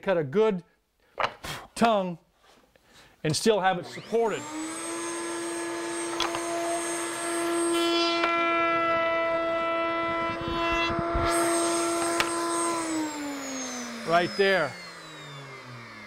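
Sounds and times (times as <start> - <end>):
router bit cutting wood: 3.7 - 16.0
router whining: 3.7 - 16.0.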